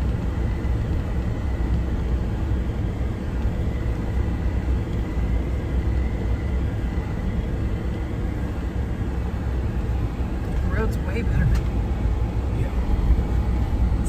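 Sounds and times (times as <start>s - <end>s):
engine: 0.0s - 14.0s
vehicle driving on gravel road: 9.4s - 14.0s.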